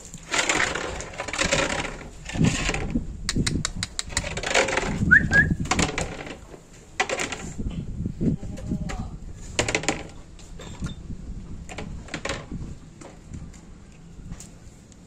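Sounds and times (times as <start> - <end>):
sharp clicks: 3.3 - 4.4.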